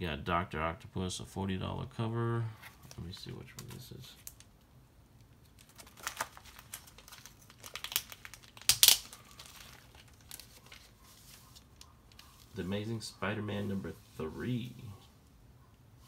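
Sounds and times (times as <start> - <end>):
plastic sleeve crinkling: 2.6 - 15.0.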